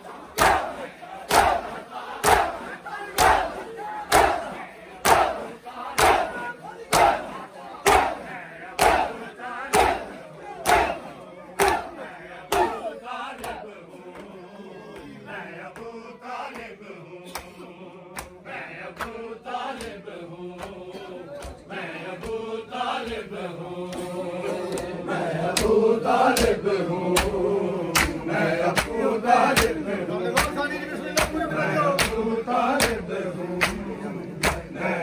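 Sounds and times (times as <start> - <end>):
men chanting: 0.0 - 35.0
palms slapping bare chests: 3.2 - 5.4, 6.0 - 6.3, 6.9 - 7.3, 8.8 - 12.8, 25.5 - 32.2.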